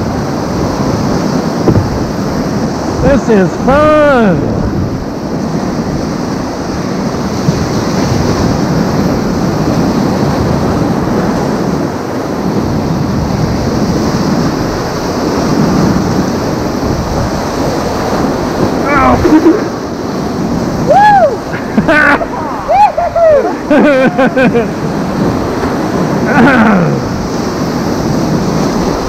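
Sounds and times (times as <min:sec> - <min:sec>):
river rapids rushing: 0:00.0 - 0:12.3, 0:12.9 - 0:29.0.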